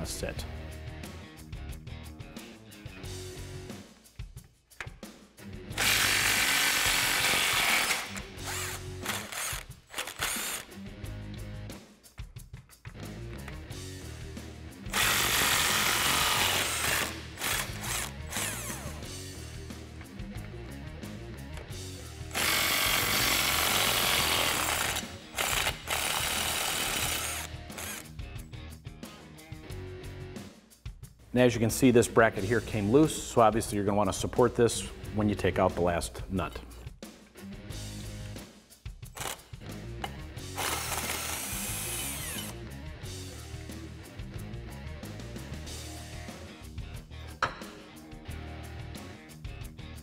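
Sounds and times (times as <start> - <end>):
background music: 0.0 - 50.0
impact wrench bursts: 5.8 - 10.7, 14.9 - 19.0, 22.3 - 28.1, 39.2 - 39.4, 40.5 - 42.6.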